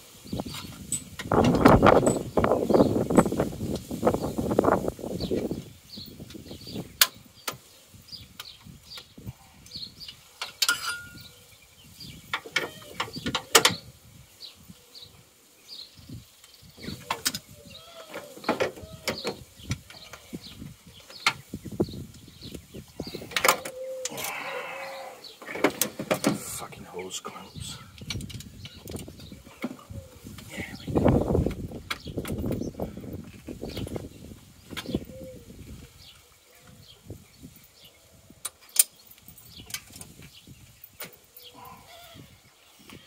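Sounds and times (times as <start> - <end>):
hand tools clicking and knocking: 10.4 - 11.2.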